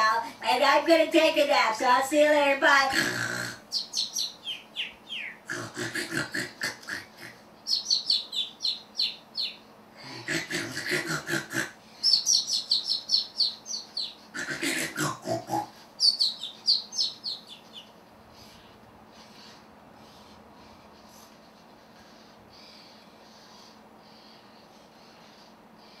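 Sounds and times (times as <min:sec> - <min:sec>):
toy parrot snorting snores: 0:02.9 - 0:03.7, 0:05.5 - 0:07.4, 0:10.0 - 0:11.8, 0:14.3 - 0:15.8.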